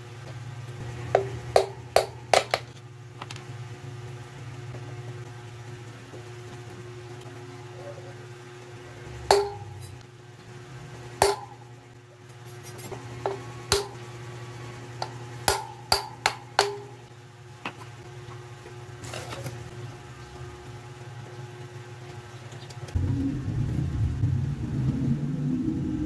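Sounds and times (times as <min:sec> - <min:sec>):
hammer striking metal: 0:01.2 - 0:02.6, 0:09.3 - 0:10.0, 0:11.2 - 0:11.6, 0:13.2 - 0:14.0, 0:15.0 - 0:17.0.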